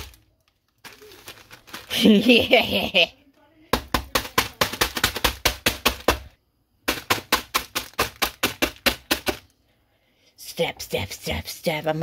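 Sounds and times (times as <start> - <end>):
hand pounding noodle packet: 3.7 - 9.5.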